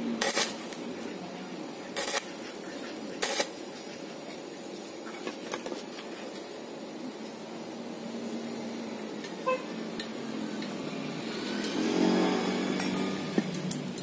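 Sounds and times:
welding arc hiss: 0.0s - 14.0s.

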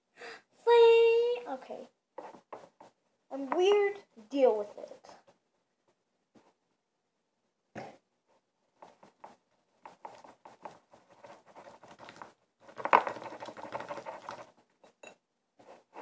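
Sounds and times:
stick stirring putty squishing: 8.8s - 14.9s.

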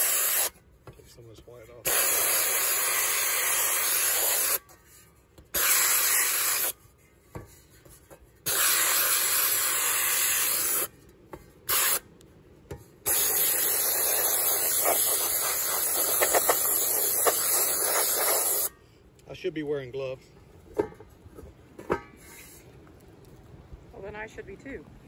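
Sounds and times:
compressed air blast gun hissing: 0.0s - 0.5s, 1.8s - 4.6s, 5.5s - 6.8s, 8.4s - 10.9s, 11.7s - 12.0s, 13.0s - 18.8s.

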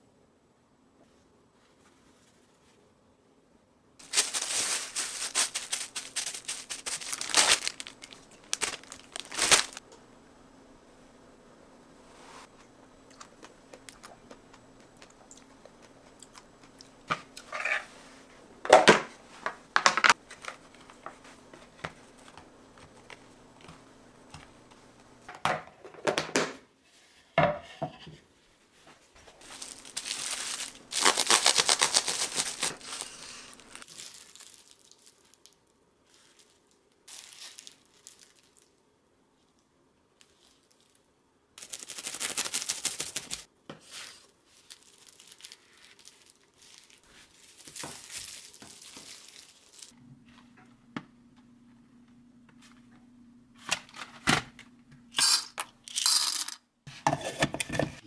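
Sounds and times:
plastic cling wrap crinkling: 4.0s - 9.8s, 29.2s - 38.8s, 41.6s - 50.0s.

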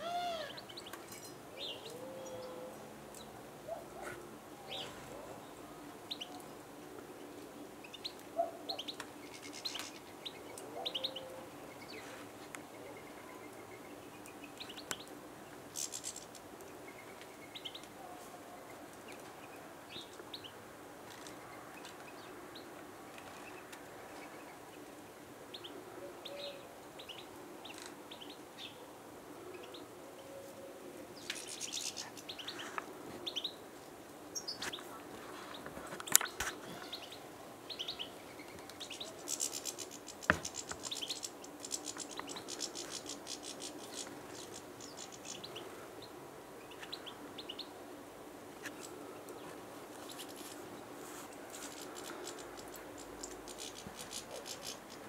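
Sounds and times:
songbirds chirping: 0.0s - 55.0s.

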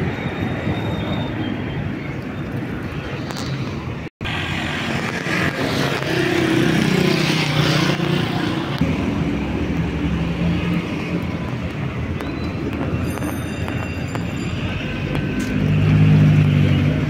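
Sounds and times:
road noise rushing: 0.0s - 17.0s
passing car engines: 14.5s - 17.0s.

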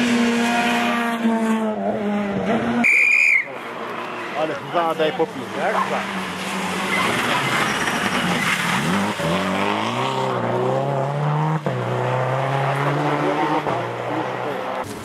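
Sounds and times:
rally car engine accelerating: 0.0s - 2.9s, 5.4s - 15.0s.

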